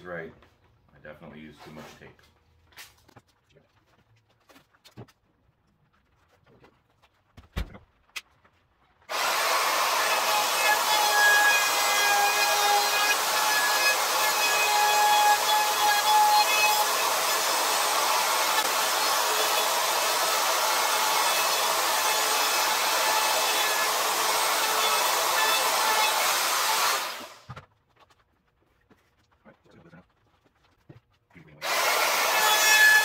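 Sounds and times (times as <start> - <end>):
router motor whine: 9.1 - 27.4, 31.6 - 33.0.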